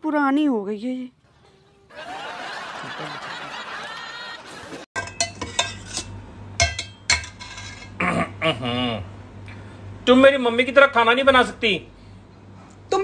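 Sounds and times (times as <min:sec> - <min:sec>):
utensils clinking on steel plate: 0:05.0 - 0:08.0
low steady hum: 0:05.0 - 0:13.0.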